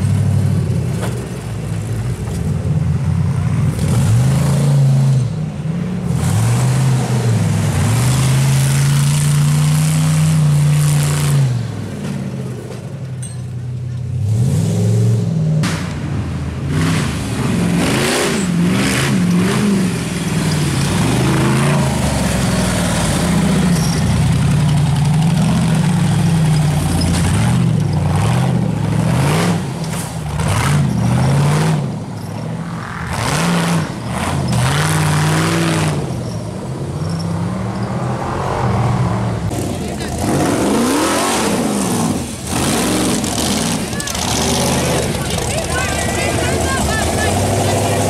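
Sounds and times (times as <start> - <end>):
buggy engine revving hard: 3.6 - 5.4, 6.0 - 11.8, 14.1 - 15.6, 16.6 - 32.1, 32.9 - 36.4, 38.4 - 48.0
tyres spinning and flinging dirt: 39.5 - 48.0.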